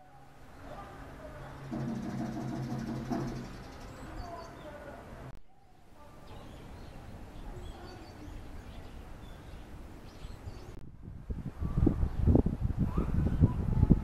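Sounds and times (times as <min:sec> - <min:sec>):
faint bird chirps: 0:00.0 - 0:10.8.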